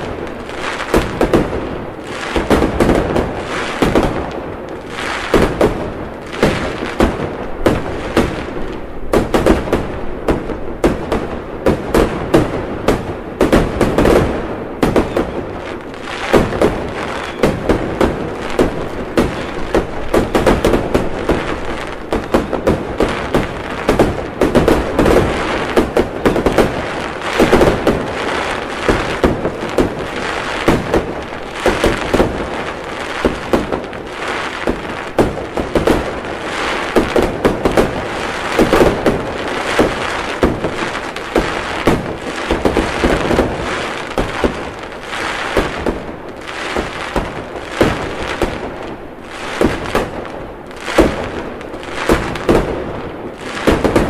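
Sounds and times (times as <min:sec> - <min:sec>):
fireworks bangs: 0:00.0 - 0:54.0
fireworks crackling: 0:00.0 - 0:54.0.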